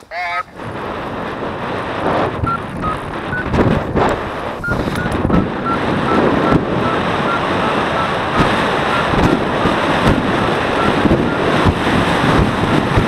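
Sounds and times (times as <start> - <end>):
wind rushing over microphone: 0.0 - 13.0
variometer short high beeps: 2.4 - 3.5, 4.6 - 9.6, 10.7 - 11.6.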